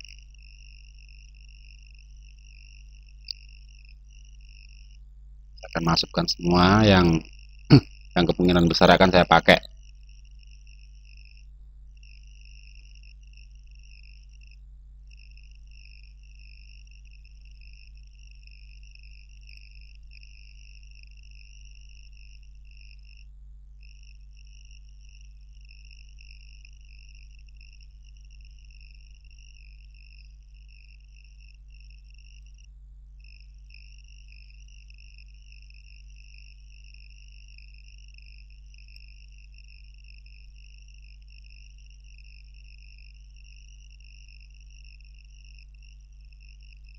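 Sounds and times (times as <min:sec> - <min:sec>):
high-pitched insect trill: 0:00.0 - 0:05.0, 0:05.7 - 0:09.0, 0:09.7 - 0:46.9
steady low hum: 0:05.6 - 0:09.7.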